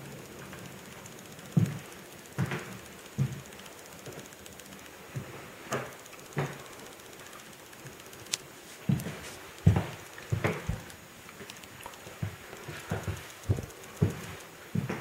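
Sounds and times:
footsteps on hard floor: 8.6 - 10.8, 12.2 - 15.0.

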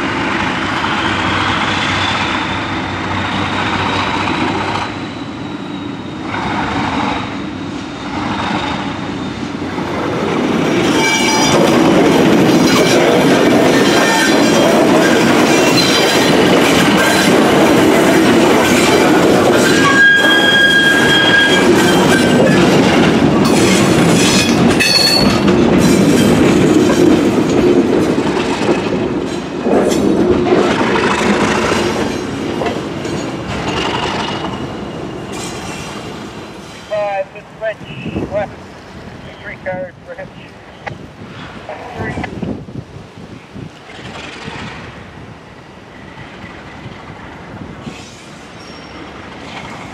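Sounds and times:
diesel locomotive passing: 0.0 - 49.9
high wheel squeals: 4.6 - 6.8, 11.0 - 11.6, 19.6 - 22.7, 48.5 - 49.2
freight cars clacking over rails: 9.7 - 36.4.

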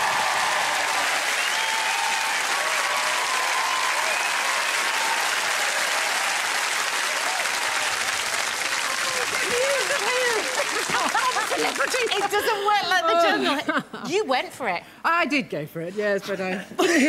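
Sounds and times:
people cheering: 0.0 - 12.7
audience applauding: 0.0 - 13.0.

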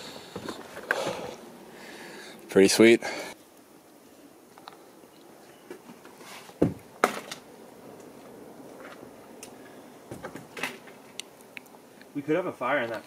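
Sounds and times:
footsteps on wooden boards: 6.2 - 7.2.

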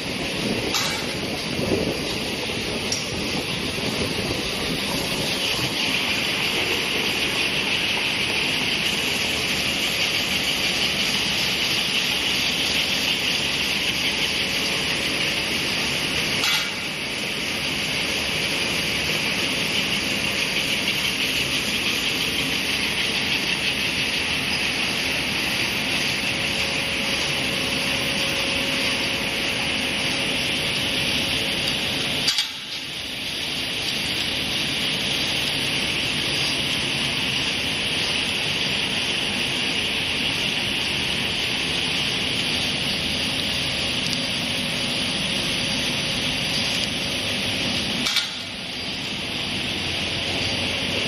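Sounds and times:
machine whirring and hissing: 0.0 - 51.0
sharp machine click: 48.0 - 48.6.

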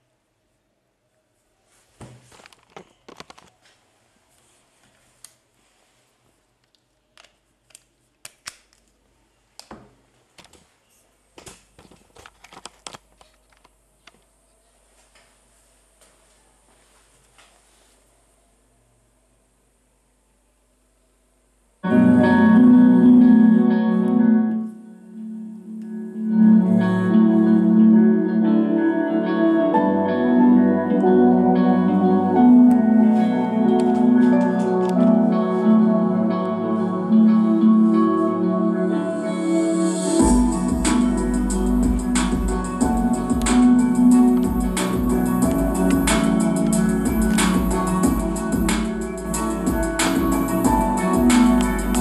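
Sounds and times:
objects and cables handled: 2.0 - 3.8, 9.6 - 14.3
music through speakers: 25.9 - 52.0.

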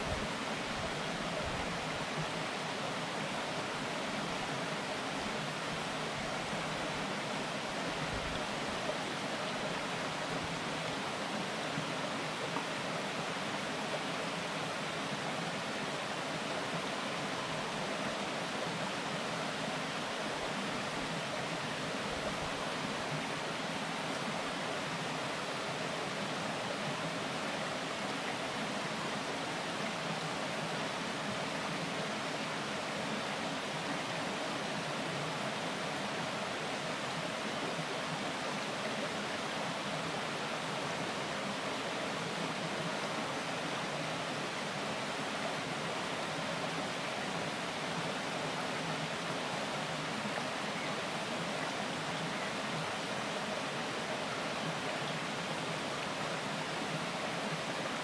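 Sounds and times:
stream babbling over rocks: 0.0 - 58.0.

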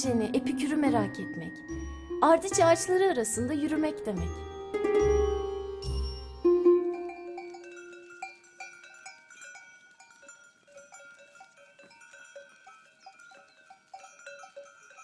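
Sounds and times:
goat bells clinking: 4.3 - 15.0.

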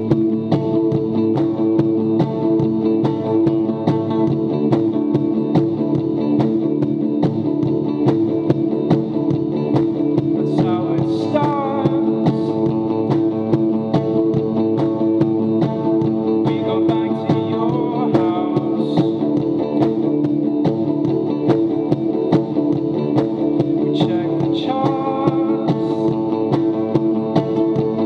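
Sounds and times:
electric guitar strumming: 0.0 - 28.0.

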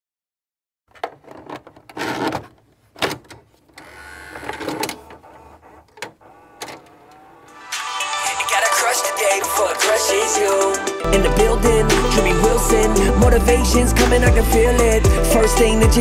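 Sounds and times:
tape rewinding whir: 3.8 - 8.3.

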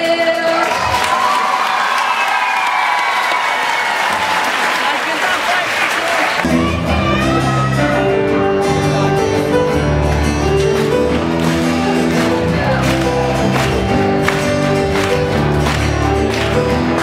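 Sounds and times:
young woman singing: 0.0 - 0.7
audience applause: 0.5 - 6.9, 10.2 - 17.0
guitar: 6.4 - 17.0
keyboard chords: 6.4 - 17.0
electric bass line: 6.5 - 17.0.

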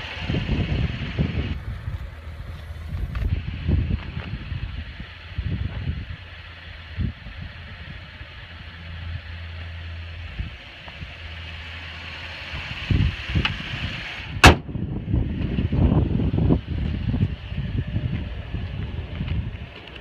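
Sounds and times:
car hood slamming shut: 14.4 - 14.7.

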